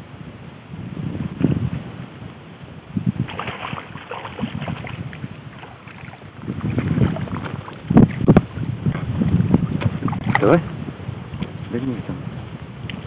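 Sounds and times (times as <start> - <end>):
wind rumbling on microphone: 0.0 - 13.0
small waves lapping: 3.2 - 9.1
water splashing: 3.2 - 10.6.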